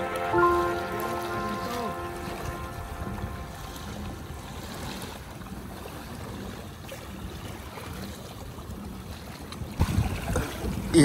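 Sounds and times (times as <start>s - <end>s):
wind on microphone: 0.0s - 6.6s, 9.6s - 11.0s
water sloshing against kayak hull: 0.0s - 11.0s.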